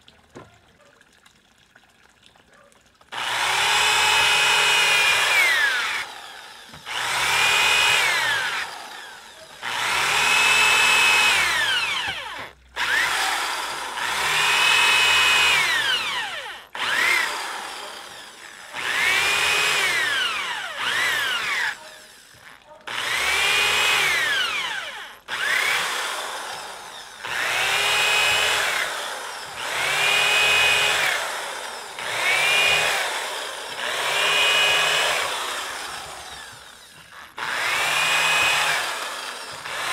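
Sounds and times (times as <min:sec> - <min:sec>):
electric drill boring into wood: 0:03.1 - 0:39.9.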